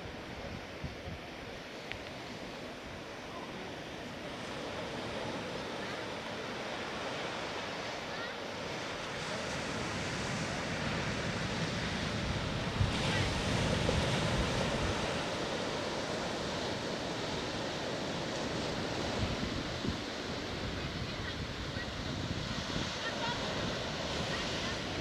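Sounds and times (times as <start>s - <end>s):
wind on microphone: 0.0s - 3.0s, 8.6s - 25.0s
ocean surf washing ashore: 0.0s - 25.0s.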